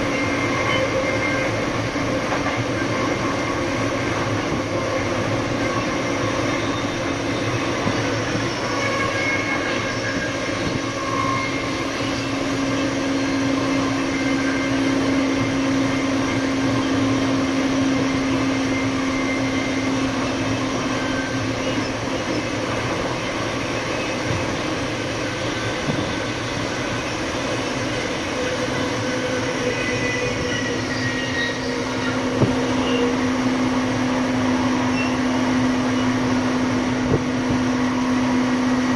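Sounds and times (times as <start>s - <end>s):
train running noise: 0.0s - 38.9s.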